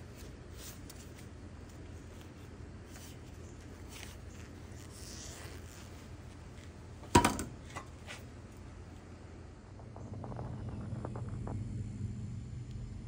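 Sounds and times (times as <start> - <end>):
faint handling noise: 0.0 - 9.1
low hum: 0.0 - 13.0.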